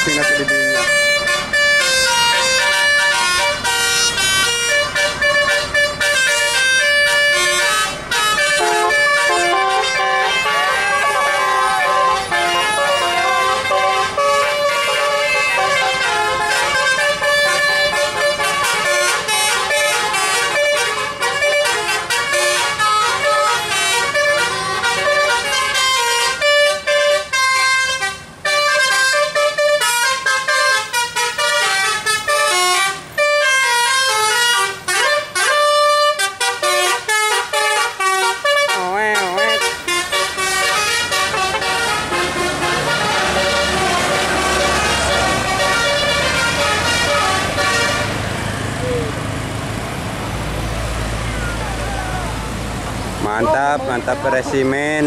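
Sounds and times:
bus musical air horns: 0.0 - 55.0.

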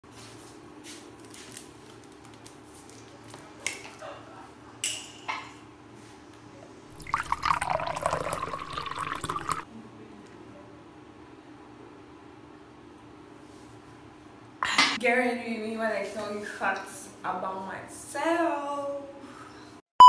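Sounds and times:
liquid pouring: 7.0 - 9.7
faint steady hum: 7.0 - 13.0.

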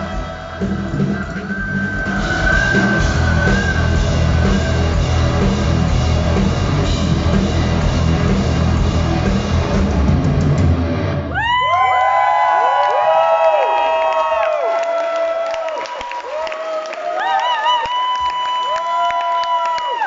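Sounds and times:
crowd cheering and whistling: 0.0 - 5.8, 11.2 - 20.0
heavy metal band playing: 0.0 - 11.5.

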